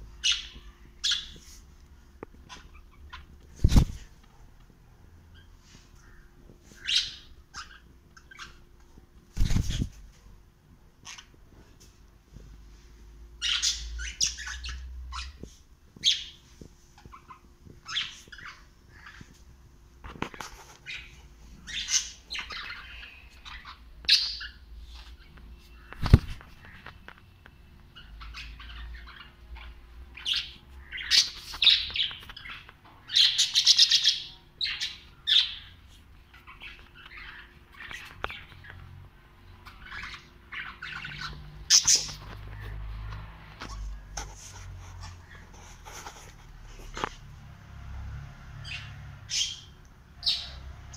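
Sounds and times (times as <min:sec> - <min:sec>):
cockatiel chirping and squawking: 0:00.2 - 0:01.5, 0:02.4 - 0:03.9, 0:06.8 - 0:08.6, 0:11.0 - 0:11.4, 0:13.4 - 0:16.4, 0:17.0 - 0:19.4, 0:20.8 - 0:27.0, 0:28.0 - 0:38.6, 0:39.6 - 0:42.7.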